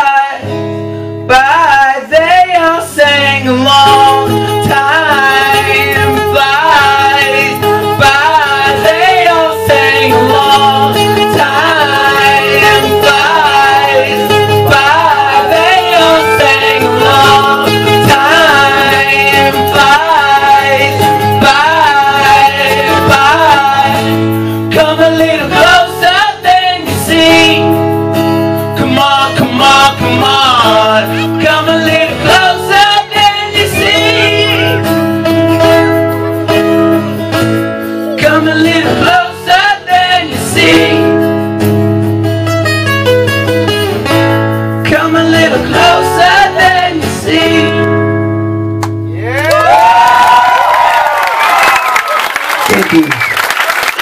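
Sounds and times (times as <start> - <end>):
man singing: 0.0 - 27.9, 28.6 - 35.7, 37.8 - 41.5, 44.8 - 48.0
strummed acoustic guitar: 0.0 - 49.2.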